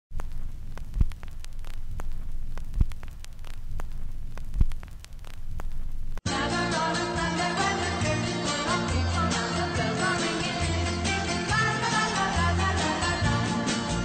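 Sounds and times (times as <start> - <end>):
low hum: 0.1 - 6.2
vinyl crackle and hiss: 0.1 - 6.2
music: 6.2 - 14.0.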